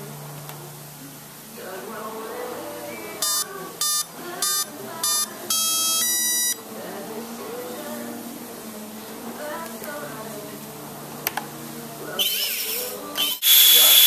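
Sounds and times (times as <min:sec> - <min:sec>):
speed controller beeps: 0:03.2 - 0:06.6, 0:13.3 - 0:14.0.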